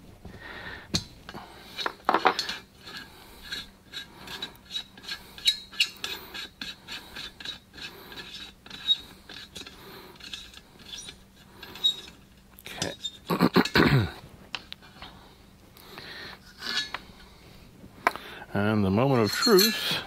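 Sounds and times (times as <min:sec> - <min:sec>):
metal clicking and scraping: 0:00.9 - 0:13.9, 0:16.4 - 0:17.1.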